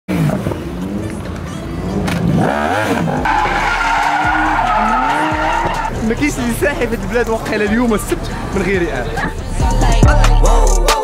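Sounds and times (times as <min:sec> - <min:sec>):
car engine revving: 0:00.1 - 0:10.0
music: 0:02.9 - 0:11.0
tyres squealing: 0:03.0 - 0:08.4.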